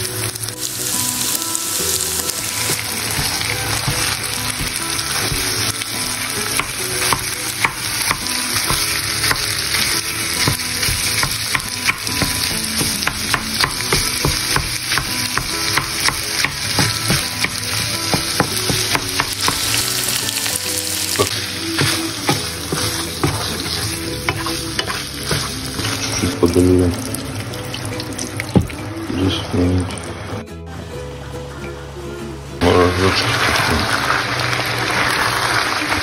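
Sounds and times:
meat and onion sizzling in a pan: 0:00.0 - 0:30.4, 0:32.8 - 0:36.0
wooden spatula scraping a pan: 0:21.1 - 0:26.4.

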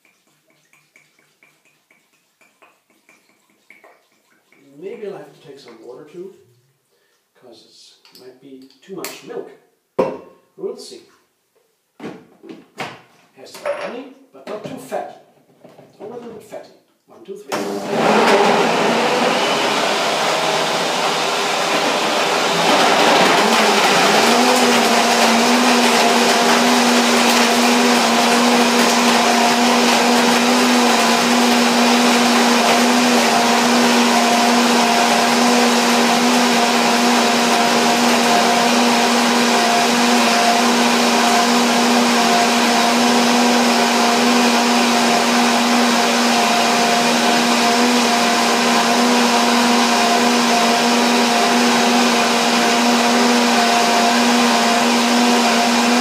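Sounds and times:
blender running: 0:17.5 - 0:56.0.

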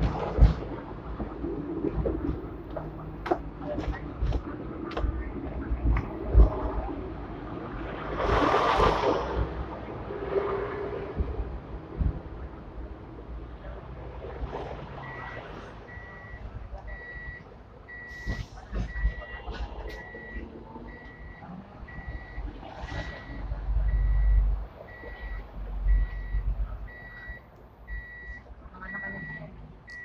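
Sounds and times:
heavy engine rumble: 0:00.0 - 0:30.0
street traffic rumble: 0:00.0 - 0:30.0
reversing alarm beeping: 0:15.9 - 0:19.3, 0:19.9 - 0:30.0.

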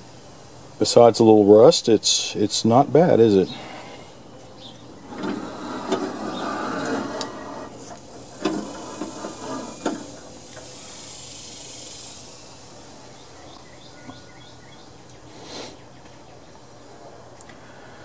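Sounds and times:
high hiss: 0:00.0 - 0:14.0, 0:15.2 - 0:15.9.

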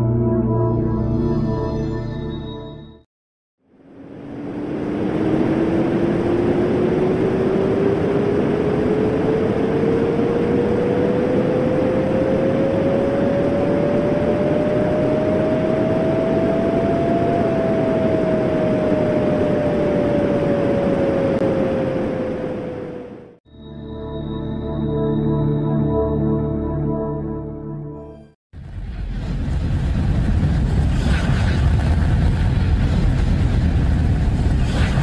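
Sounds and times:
gliding synthesized tone: 0:00.0 - 0:03.0
steady rushing noise: 0:03.7 - 0:23.4, 0:28.6 - 0:35.0.

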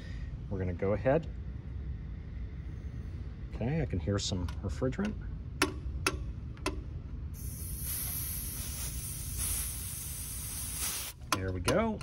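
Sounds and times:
refrigerant hissing from hose fitting: 0:07.4 - 0:11.2.

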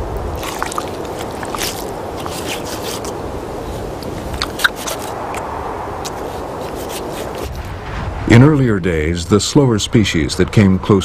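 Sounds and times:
steady rushing noise: 0:00.0 - 0:11.0
knife scraping and slicing blubber: 0:00.4 - 0:03.2.

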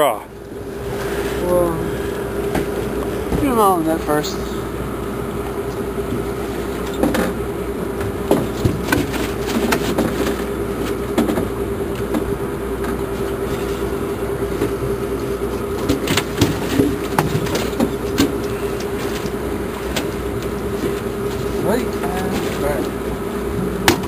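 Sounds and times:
boat engine droning: 0:00.0 - 0:24.0
knocks and clatter on deck: 0:06.8 - 0:07.4, 0:08.0 - 0:13.0, 0:15.8 - 0:21.0.

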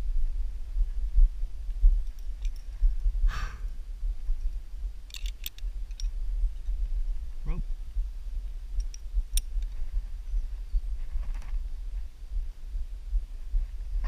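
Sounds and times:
low rumble: 0:00.0 - 0:14.0
carabiners clicking: 0:02.0 - 0:02.7, 0:05.1 - 0:06.2.

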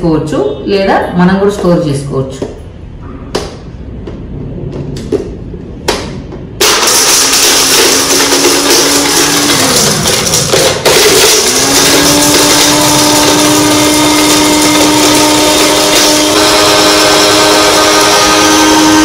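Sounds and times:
mixer grinder motor whine: 0:06.6 - 0:19.0.

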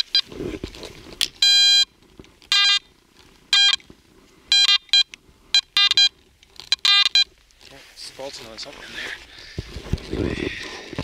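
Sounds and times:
metal detector beeps: 0:00.0 - 0:00.2, 0:01.4 - 0:02.9, 0:03.5 - 0:03.8, 0:04.5 - 0:07.3.

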